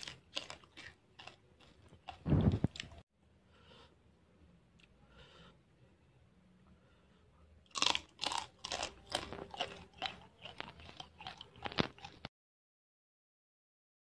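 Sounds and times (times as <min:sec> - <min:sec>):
person chewing crunchy food: 0:00.0 - 0:03.0, 0:07.7 - 0:12.3.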